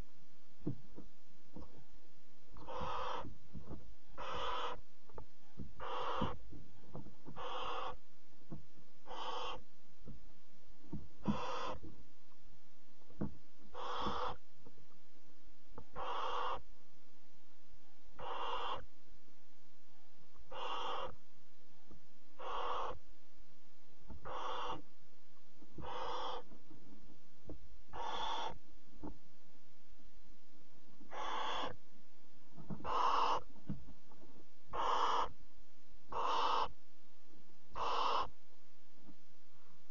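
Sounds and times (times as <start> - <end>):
owl chicks hissing: 2.6 - 3.4, 4.1 - 4.8, 5.5 - 6.4, 7.2 - 8.0, 9.0 - 9.7, 11.2 - 11.9, 13.7 - 14.4, 15.9 - 16.7, 18.2 - 18.9, 20.5 - 21.2, 22.4 - 23.0, 24.2 - 24.9, 25.8 - 26.6, 27.9 - 28.6, 31.1 - 31.8, 32.8 - 33.6, 34.7 - 35.4, 36.1 - 36.8, 37.7 - 38.4.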